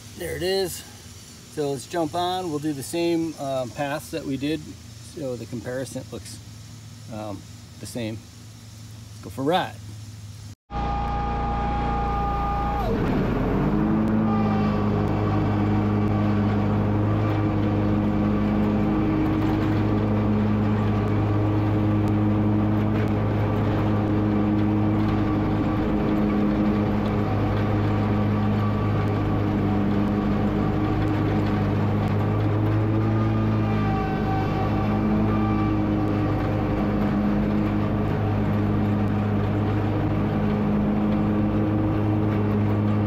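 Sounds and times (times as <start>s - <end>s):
mower engine running: 10.7s - 43.0s.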